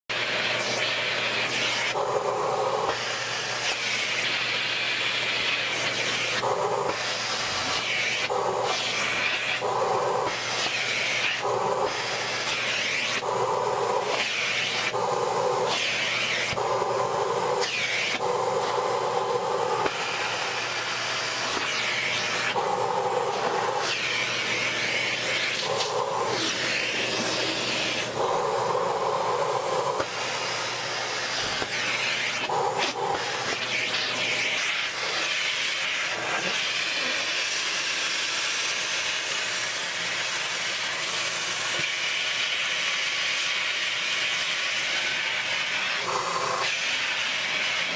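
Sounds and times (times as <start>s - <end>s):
vacuum cleaner running: 0.0s - 47.9s.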